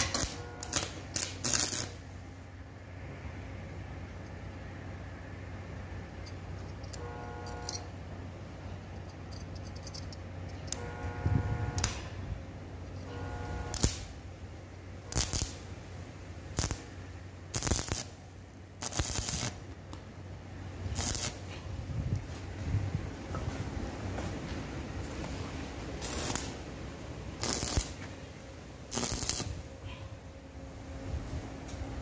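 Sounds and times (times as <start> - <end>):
arc welder crackling: 0.0 - 2.3, 9.5 - 29.8.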